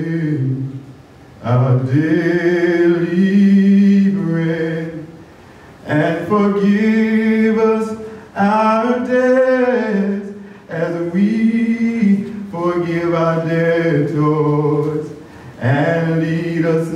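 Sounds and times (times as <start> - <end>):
person singing slowly: 0.0 - 0.8, 1.4 - 5.2, 5.8 - 16.9.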